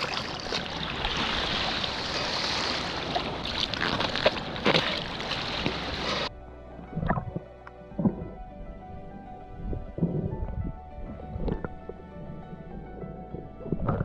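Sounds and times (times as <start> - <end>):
fins splashing in surf: 0.0 - 6.3.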